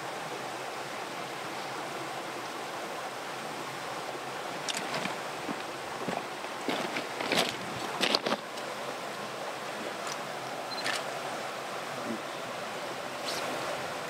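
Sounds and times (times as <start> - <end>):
stream water rushing: 0.0 - 14.0
handling clicks and rustles: 4.6 - 8.7.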